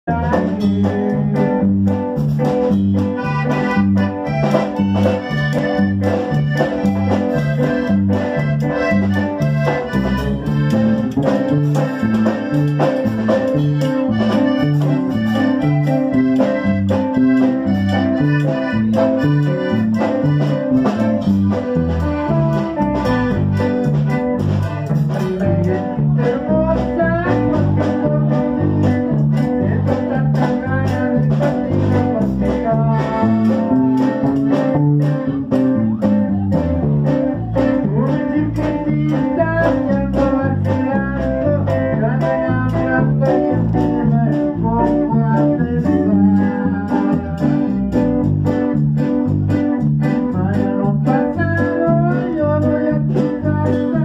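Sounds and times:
electric bass: 0.0 - 54.0
electric guitar: 0.0 - 54.0
piano accordion: 2.9 - 45.1.

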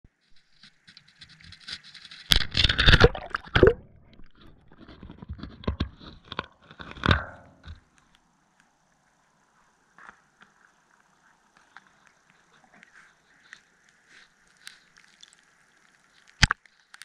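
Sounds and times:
underwater knocks and clicks: 1.0 - 7.8
underwater bubbling: 2.5 - 4.9.

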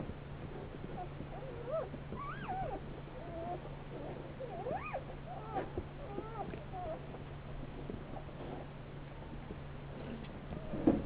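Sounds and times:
puppies squeaking and whimpering: 0.8 - 8.7.

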